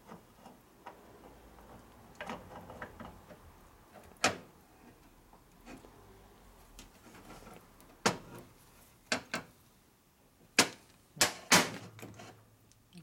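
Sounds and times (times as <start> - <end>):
small metal clicks and knocks: 0.0 - 3.4.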